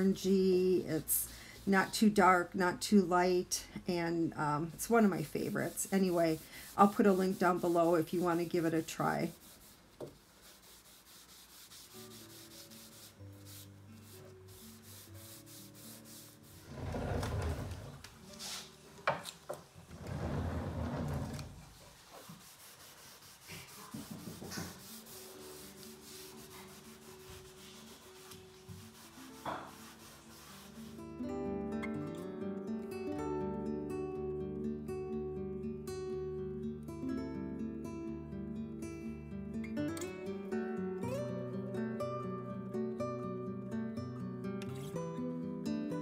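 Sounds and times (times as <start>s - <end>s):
faint background music: 0.0s - 9.8s, 10.5s - 19.8s, 22.5s - 46.0s
rag rubbing on wood: 4.8s - 18.5s, 20.0s - 31.0s.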